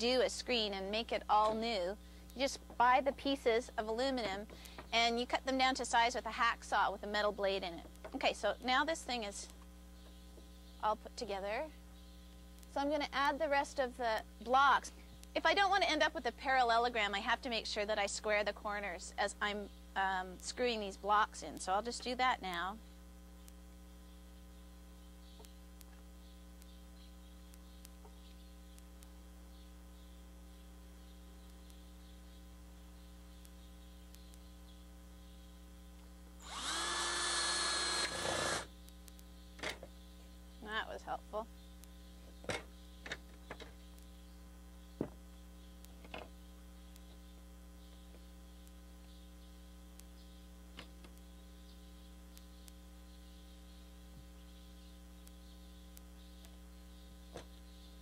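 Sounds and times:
electrical hum: 0:00.0 - 0:58.0
faint ticks: 0:11.9 - 0:12.8, 0:23.4 - 0:36.1, 0:38.8 - 0:39.4, 0:41.5 - 0:42.1, 0:45.2 - 0:54.6, 0:55.2 - 0:58.0.

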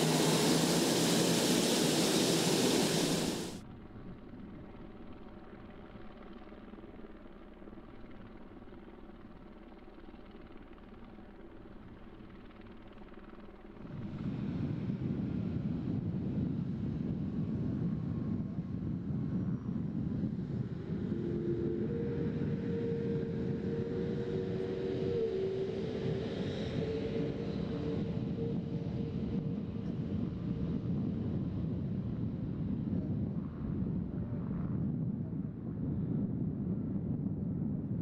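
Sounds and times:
jet engines rumbling: 0:00.0 - 0:03.6, 0:14.2 - 0:34.7
steady hum: 0:00.0 - 0:03.6, 0:17.4 - 0:38.0.

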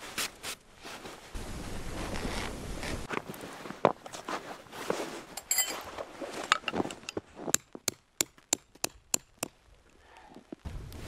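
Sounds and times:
tarp rustling and scuffing: 0:00.0 - 0:07.5
tent stake being hammered: 0:07.5 - 0:09.6.

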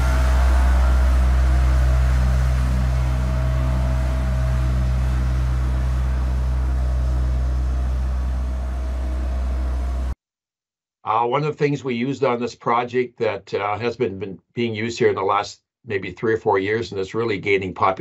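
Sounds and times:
road roller engine drone: 0:00.0 - 0:10.2.

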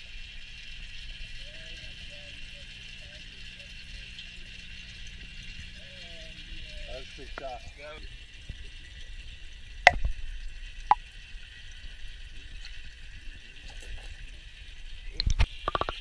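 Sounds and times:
muffled underwater hiss: 0:00.0 - 0:16.0
sharp knocks and plops: 0:15.2 - 0:16.0.

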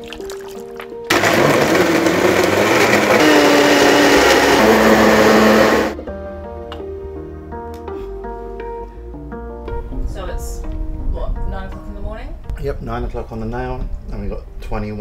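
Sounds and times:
blender running: 0:01.1 - 0:06.0.

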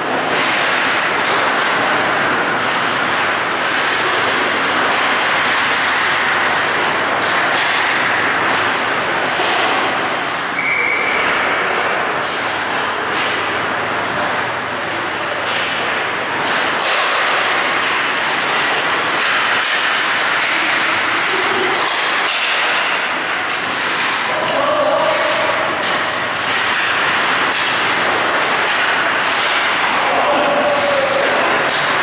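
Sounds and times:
skates rushing on ice: 0:00.0 - 0:32.0
stick and puck knocks: 0:21.7 - 0:24.3.

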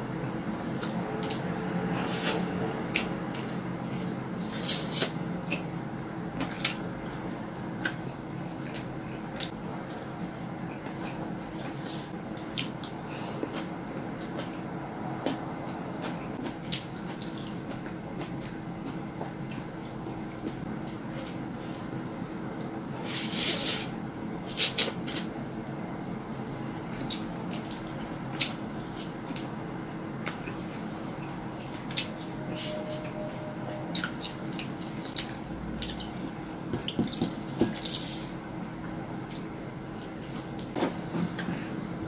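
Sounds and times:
steady low hum: 0:00.0 - 0:42.0
person chewing food: 0:30.2 - 0:32.3
chewing: 0:33.9 - 0:38.2.

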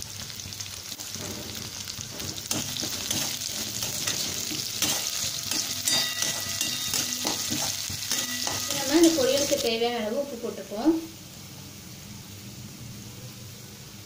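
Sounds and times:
vegetables sizzling in hot oil: 0:00.0 - 0:14.0
spatula scraping and tapping pan: 0:01.0 - 0:09.6.

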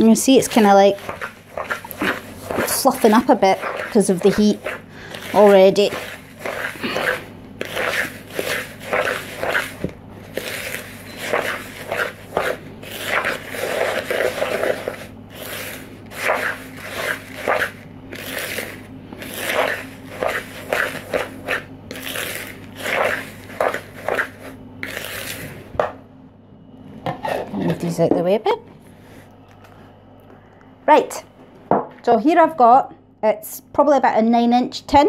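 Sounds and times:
utensil scraping sticky mix in bowl: 0:00.0 - 0:25.8.

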